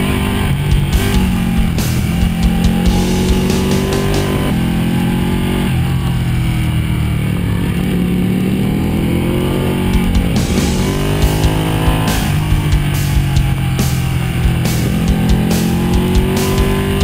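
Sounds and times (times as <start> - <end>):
motorcycle engine revving: 0.0 - 17.0
music playing: 0.1 - 4.9, 9.8 - 17.0.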